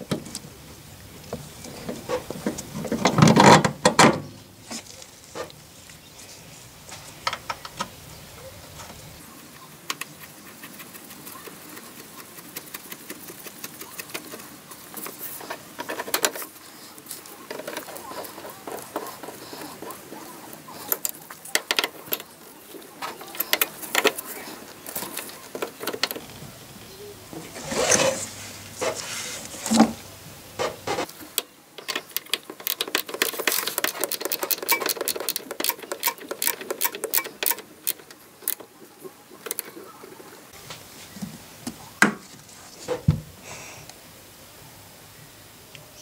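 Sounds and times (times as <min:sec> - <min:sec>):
metal clicks and knocks: 0:01.9 - 0:04.3, 0:20.9 - 0:22.3, 0:30.6 - 0:38.7
ratcheting spanner clicking: 0:31.8 - 0:38.6.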